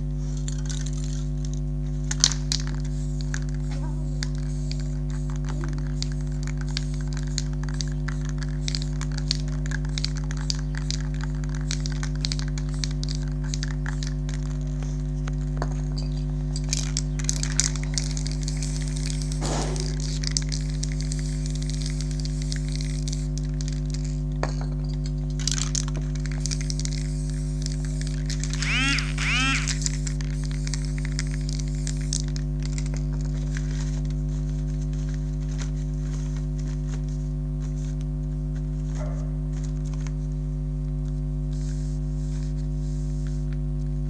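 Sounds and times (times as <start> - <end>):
spray-paint cans hissing: 0.2 - 38.0, 41.1 - 44.0
sharp clicks and crackles: 0.3 - 34.2.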